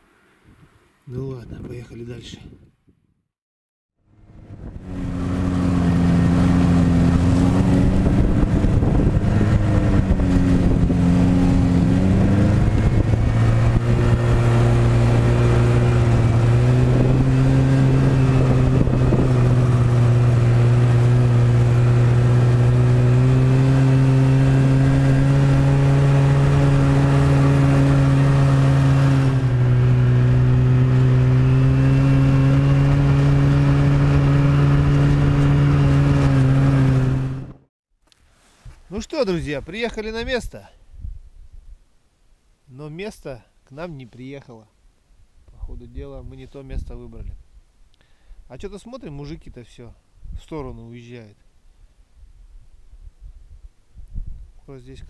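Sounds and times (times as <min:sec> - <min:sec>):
snowmobile engine running: 0:04.2 - 0:37.6.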